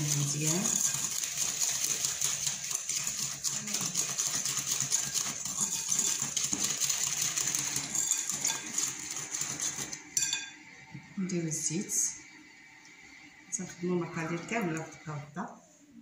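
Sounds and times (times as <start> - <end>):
whisk tapping glass bowl: 0.0 - 10.6.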